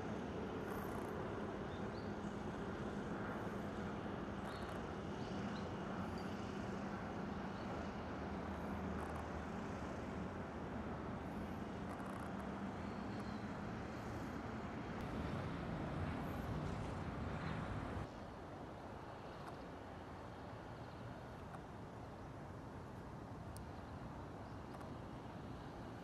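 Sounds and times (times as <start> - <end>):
distant traffic rumble: 0.0 - 18.1.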